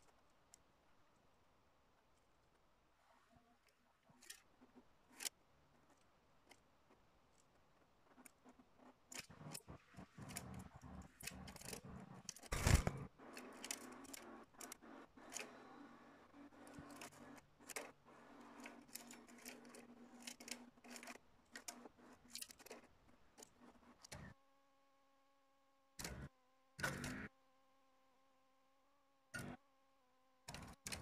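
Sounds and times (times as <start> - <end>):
small sharp clicks: 3.6 - 24.4, 26.0 - 27.3, 29.3 - 29.6, 30.4 - 31.0
birds rustling in cage: 10.1 - 14.7.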